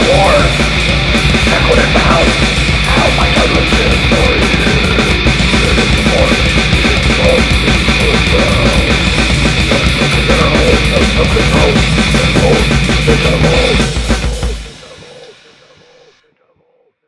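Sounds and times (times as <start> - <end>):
fast drumming: 0.0 - 16.2
distorted guitars: 0.0 - 16.4.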